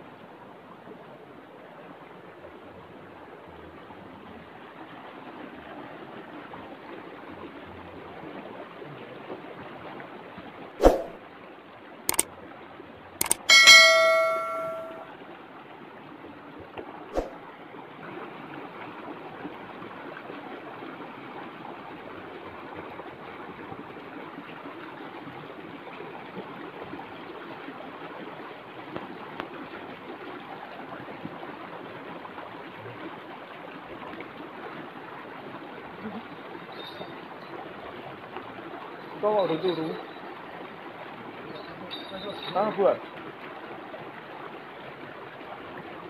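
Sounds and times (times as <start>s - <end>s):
bell ringing: 13.2s - 15.0s
sharp click: 13.2s - 15.0s.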